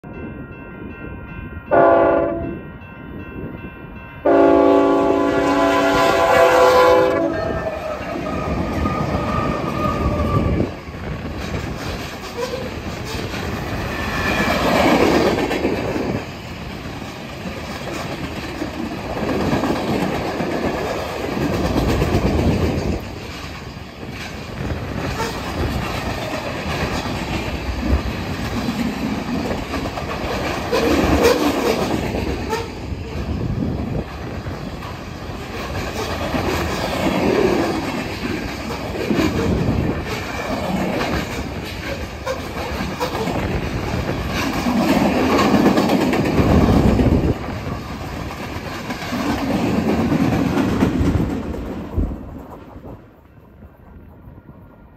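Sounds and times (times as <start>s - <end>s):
freight train wheels rumbling on rails: 0.0s - 54.9s.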